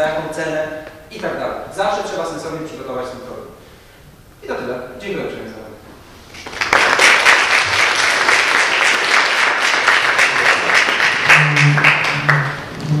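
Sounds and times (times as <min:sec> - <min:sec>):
audience applauding: 0:06.4 - 0:13.0
low held music notes: 0:10.4 - 0:13.0.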